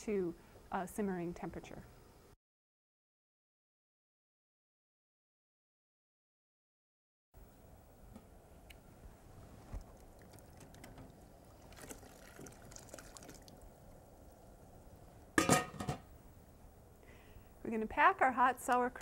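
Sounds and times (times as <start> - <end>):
water trickling and dripping: 9.8 - 15.3.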